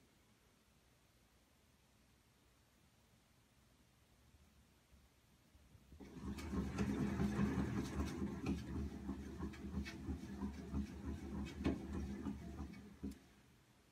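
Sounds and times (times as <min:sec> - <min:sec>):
cat exercise wheel rumbling: 0:06.0 - 0:13.5.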